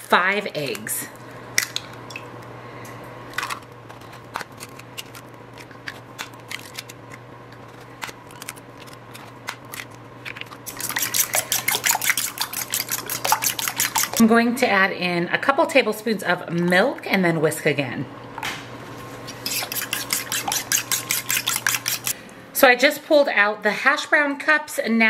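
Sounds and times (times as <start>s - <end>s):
eggshells cracking: 3.4s - 14.2s
fork whisking in bowl: 7.5s - 14.3s, 19.3s - 22.2s.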